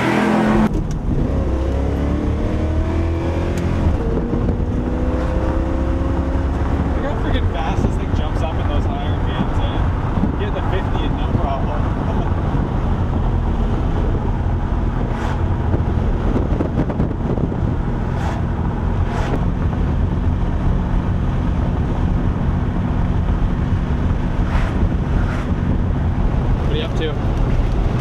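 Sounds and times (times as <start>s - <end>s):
car engine drone: 0.0s - 28.0s
road and wind noise: 0.0s - 28.0s.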